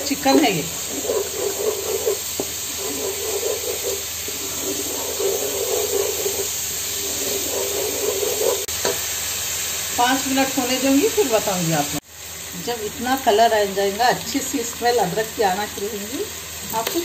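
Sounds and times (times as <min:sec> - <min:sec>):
onion paste frying in hot oil: 0:00.0 - 0:17.0
wooden spoon stirring: 0:00.2 - 0:08.7.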